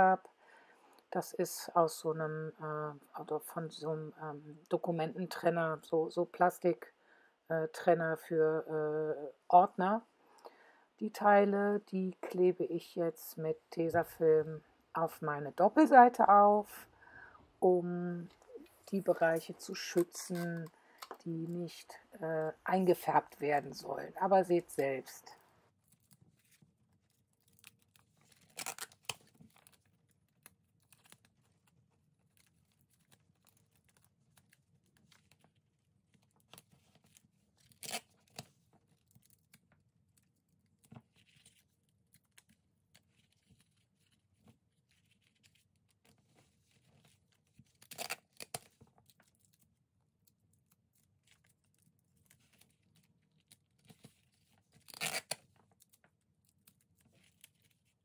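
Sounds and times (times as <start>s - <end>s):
handling tape and plastic: 18.2s - 22.6s, 24.6s - 58.0s
adhesive tape tearing: 27.4s - 29.8s, 37.6s - 38.5s, 47.7s - 48.8s, 54.8s - 55.4s.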